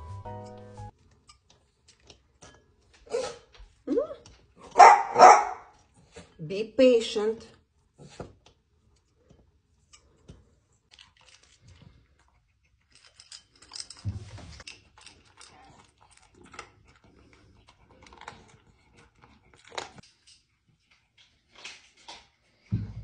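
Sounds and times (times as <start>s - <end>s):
dog chewing food: 10.9s - 14.0s, 14.6s - 22.6s.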